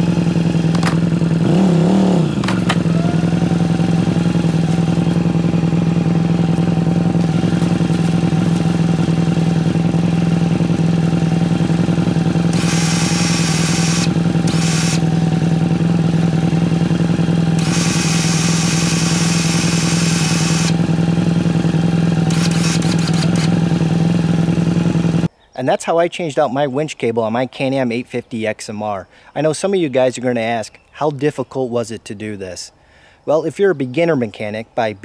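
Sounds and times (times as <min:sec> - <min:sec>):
electric winch humming: 0:00.0 - 0:21.3, 0:22.1 - 0:23.7.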